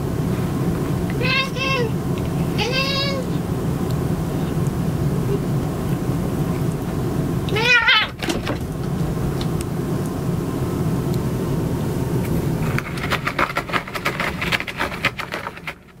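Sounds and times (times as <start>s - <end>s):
cat crying: 2.6s - 3.3s, 7.5s - 8.2s
claws scratching cardboard: 12.6s - 16.0s.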